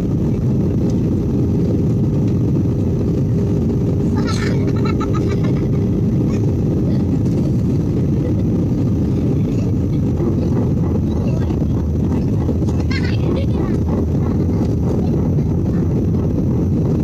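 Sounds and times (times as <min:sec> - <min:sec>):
jet engines and rushing air: 0:00.0 - 0:17.0.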